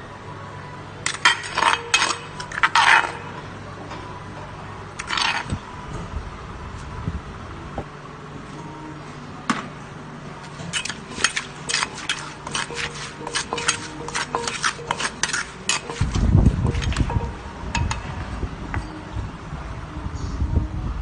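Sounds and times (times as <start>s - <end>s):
spoon scraping in mortar: 1.1s - 3.2s, 5.0s - 5.6s, 10.4s - 17.4s.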